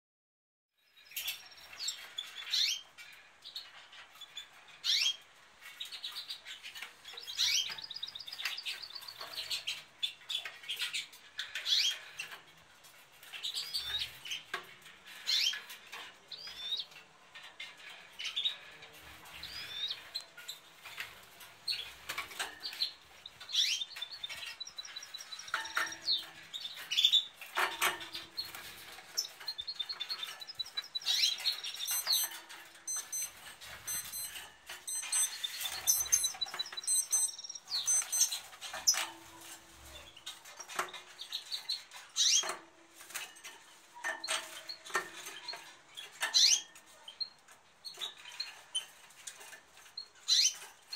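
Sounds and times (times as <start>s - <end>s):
birds chirping and calling: 0.9s - 50.9s
fast twittering bird trill: 29.2s - 39.0s.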